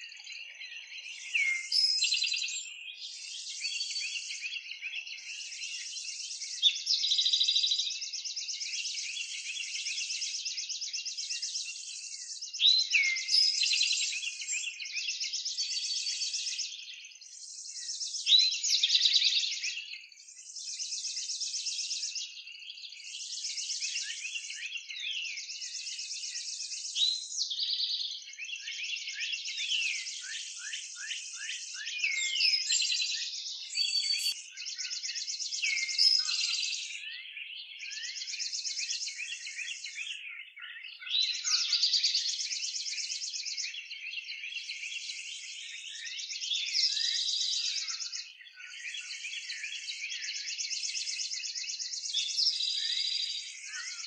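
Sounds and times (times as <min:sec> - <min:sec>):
songbird chorus: 0:00.0 - 0:54.0
high buzzy bird trills: 0:33.7 - 0:34.4.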